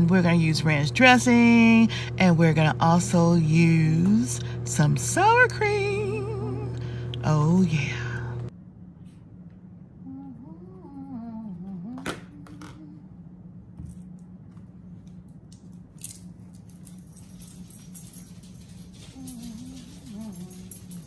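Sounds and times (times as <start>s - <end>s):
low wavering hum-like voice: 0.0s - 8.6s, 9.8s - 13.7s, 18.9s - 21.0s
low electrical hum: 0.0s - 21.0s.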